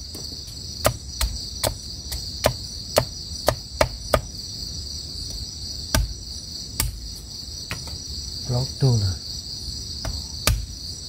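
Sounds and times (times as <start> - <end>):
crickets chirping: 0.0 - 11.0
machete chopping wood: 0.8 - 4.3, 5.9 - 6.2, 6.8 - 7.0, 10.0 - 10.8.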